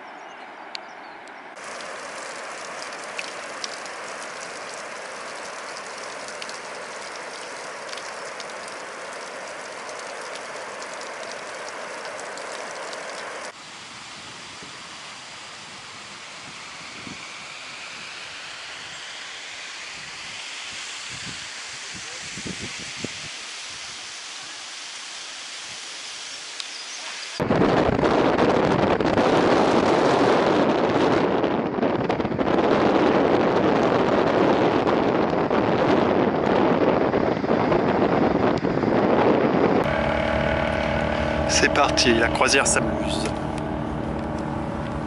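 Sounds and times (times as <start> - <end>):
faint outdoor hiss: 0.4 - 27.4
waterfall roaring: 1.6 - 13.6, 39.8 - 45.0.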